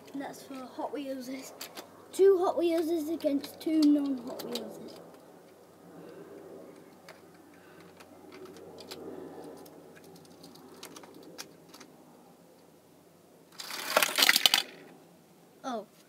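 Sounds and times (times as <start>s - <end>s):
toy cars rattling down ramp: 13.5s - 14.9s.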